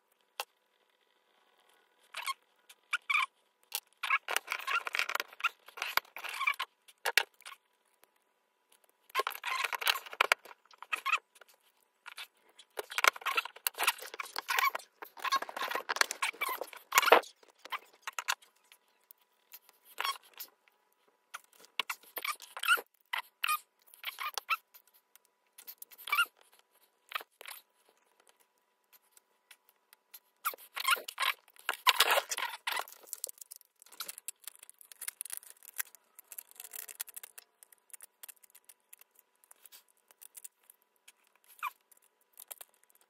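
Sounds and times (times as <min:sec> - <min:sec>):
small metal parts scraping: 0:09.1 - 0:20.5, 0:30.4 - 0:43.0.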